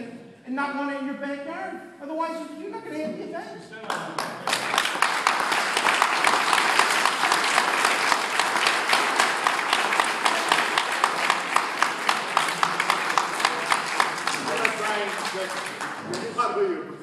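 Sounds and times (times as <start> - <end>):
audience applauding: 3.8 - 16.6.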